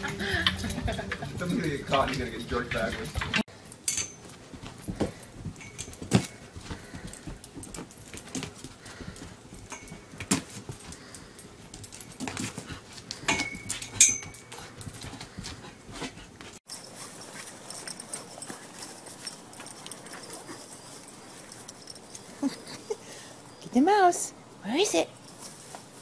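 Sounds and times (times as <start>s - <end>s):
dog paws scrabbling on carpet: 4.2s - 22.4s.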